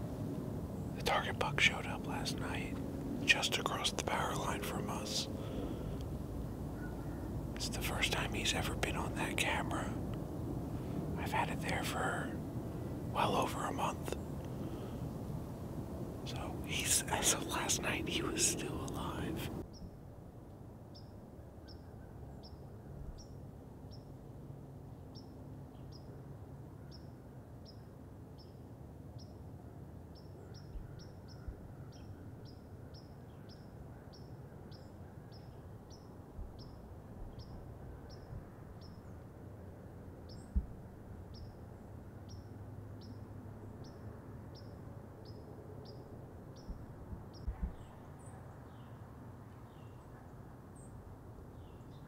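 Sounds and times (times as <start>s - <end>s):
faint low rumble: 0.0s - 19.9s.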